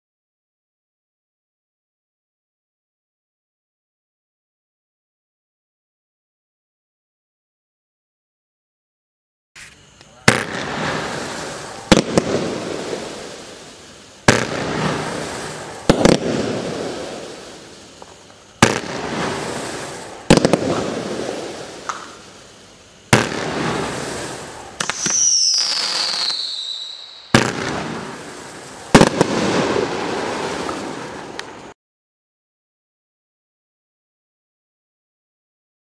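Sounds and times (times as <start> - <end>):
firework hiss: 9.6 - 31.8
firework bangs: 10.2 - 22.4, 23.1 - 31.8
whistle gliding down in pitch: 25.0 - 27.3.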